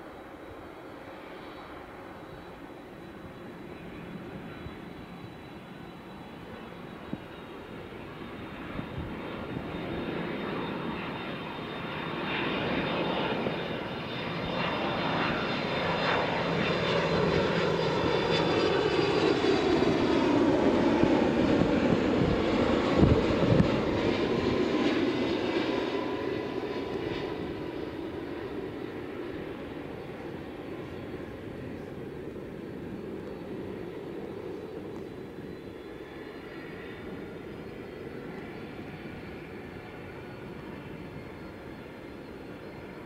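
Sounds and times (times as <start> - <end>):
jet engines of plane: 0.0 - 43.0.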